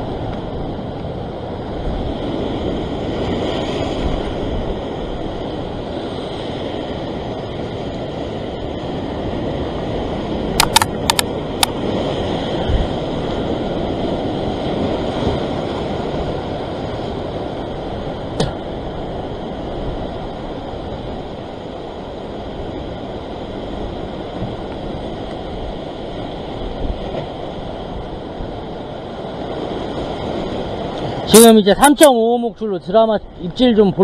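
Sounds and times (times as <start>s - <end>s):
sharp click: 10.6s - 11.8s.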